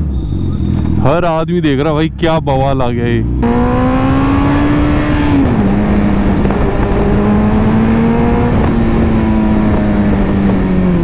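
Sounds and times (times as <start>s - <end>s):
motorcycle engine running: 3.0s - 11.0s.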